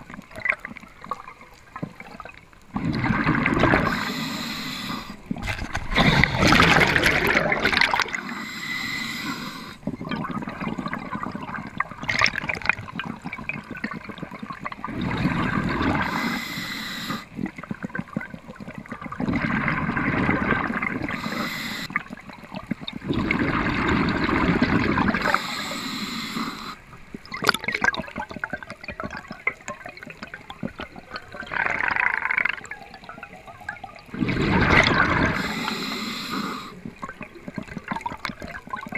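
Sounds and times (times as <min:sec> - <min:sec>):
muffled underwater water rushing: 0:00.0 - 0:38.9.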